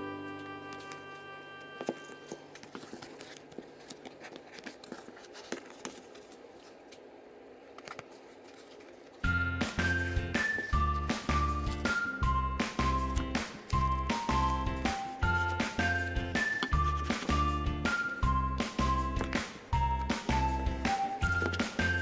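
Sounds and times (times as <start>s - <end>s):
background music: 0.0s - 2.5s, 9.2s - 22.0s.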